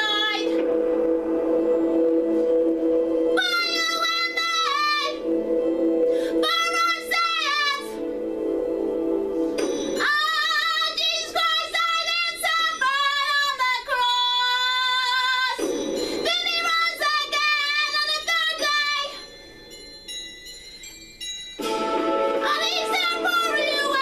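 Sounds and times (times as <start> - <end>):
high voice singing over music: 0.0 - 2.5, 3.2 - 8.3, 21.7 - 24.0.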